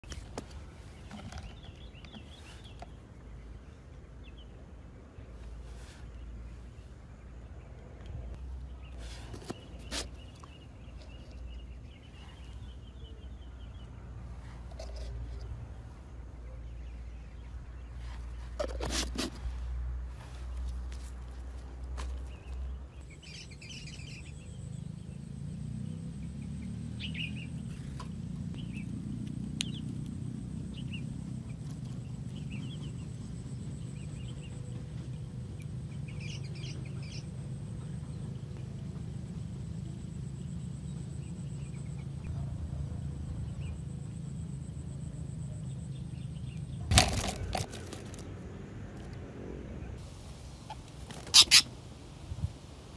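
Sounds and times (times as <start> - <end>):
small birds chirping: 0.0 - 52.9
low steady rumble: 19.4 - 51.0.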